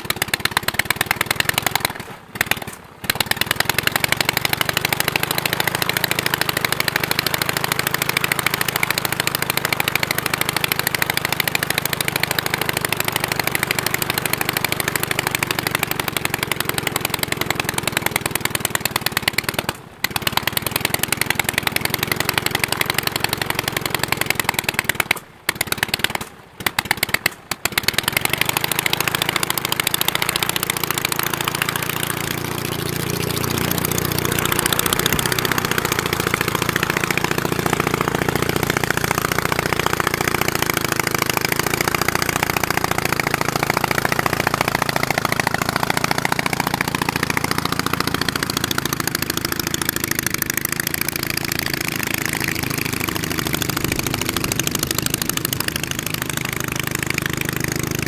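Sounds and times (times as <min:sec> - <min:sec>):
aero engine running: 0:00.0 - 0:58.0.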